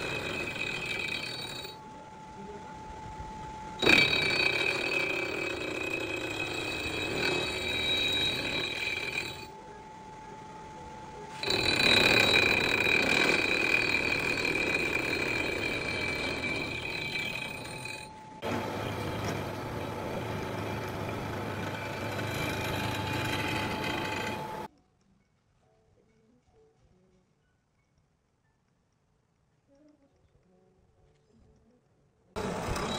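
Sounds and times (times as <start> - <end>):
milling cutter machining metal: 0.0 - 1.8, 3.8 - 9.6, 11.3 - 24.7, 32.4 - 32.9.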